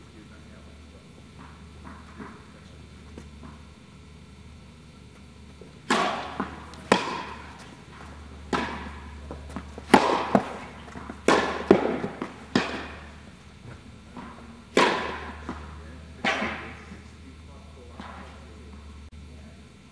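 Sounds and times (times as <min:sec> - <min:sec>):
tennis ball bouncing on court: 0:01.4 - 0:02.5, 0:05.8 - 0:13.2, 0:14.1 - 0:16.8
tennis ball hit by rackets: 0:05.8 - 0:13.2, 0:14.1 - 0:16.8.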